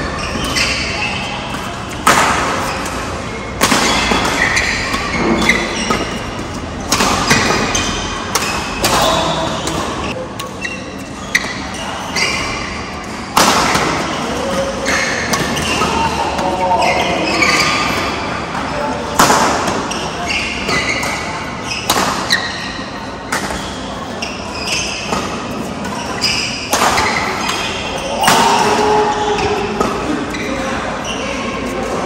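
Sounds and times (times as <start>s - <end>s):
shoes squeaking on court: 0.0s - 18.9s, 19.7s - 32.0s
racket striking shuttlecock: 1.5s - 10.6s.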